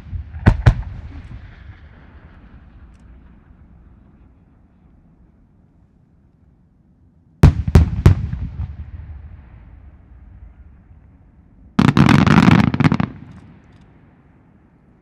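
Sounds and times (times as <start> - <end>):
firework shells booming: 0.0 - 3.4, 11.8 - 13.7.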